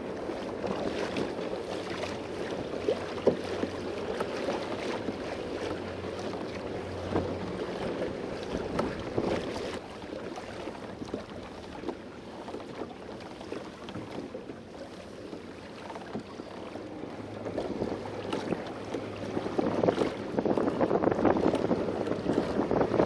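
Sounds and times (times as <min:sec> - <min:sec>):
water splashing against kayak hull: 0:00.0 - 0:23.0
wind on microphone: 0:04.4 - 0:09.8, 0:17.2 - 0:23.0.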